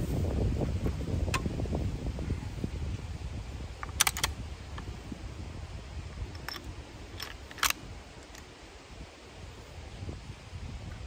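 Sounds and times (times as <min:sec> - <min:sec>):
rifle action clicks: 0:03.8 - 0:04.4, 0:06.4 - 0:08.4.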